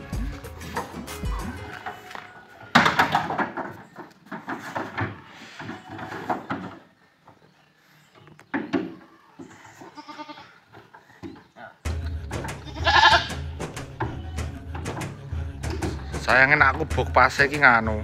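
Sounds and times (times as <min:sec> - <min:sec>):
hooves clattering on planks: 0:00.0 - 0:18.0
wooden knocks and scrapes: 0:01.7 - 0:06.9.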